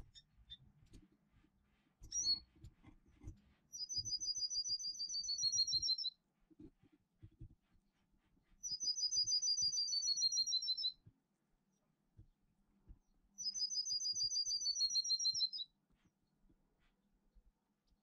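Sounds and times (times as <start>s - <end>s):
songbird singing: 3.8s - 6.1s, 8.6s - 11.0s, 13.4s - 15.7s.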